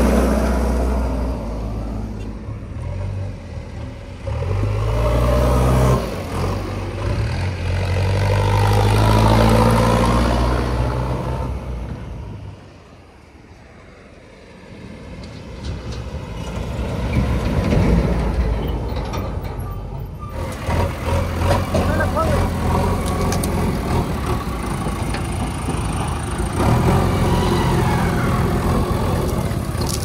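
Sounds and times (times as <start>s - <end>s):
heavy diesel engine running: 20.3s - 30.0s.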